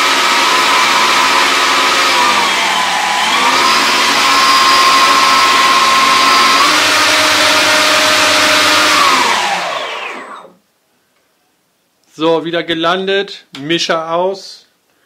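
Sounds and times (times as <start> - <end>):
electric motors propellers whining: 0.0 - 10.5.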